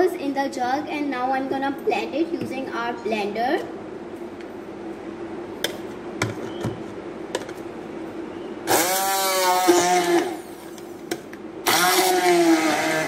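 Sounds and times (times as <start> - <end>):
immersion blender motor: 8.7 - 10.5, 11.6 - 13.0.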